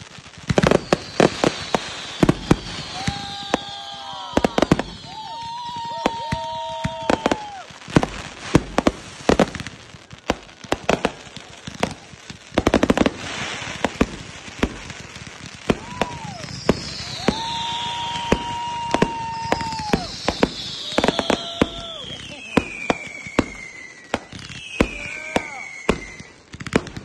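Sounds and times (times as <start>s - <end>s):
firework whistling tones: 0.0s - 10.2s, 12.8s - 27.0s
rapid firework crackling: 0.0s - 27.0s
firework shells bursting: 15.5s - 27.0s.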